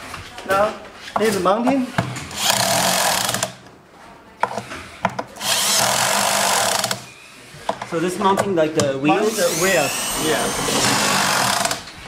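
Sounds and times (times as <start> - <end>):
cordless drill running: 2.4 - 3.6, 5.4 - 7.1, 9.2 - 11.9.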